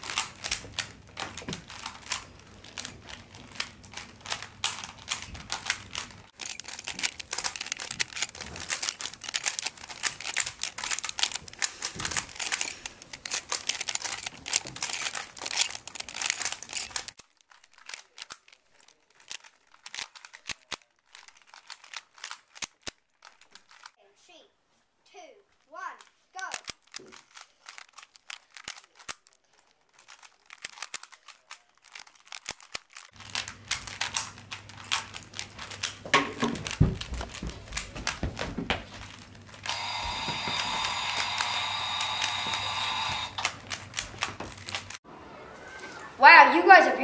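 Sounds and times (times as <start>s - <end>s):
plastic puzzle cubes clicking: 0.0s - 23.9s, 26.4s - 36.8s.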